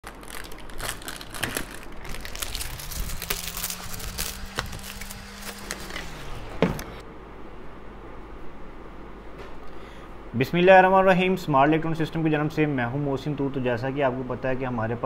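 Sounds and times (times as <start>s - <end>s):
plastic packaging crinkling: 0.0s - 7.0s
low hum: 0.0s - 9.3s.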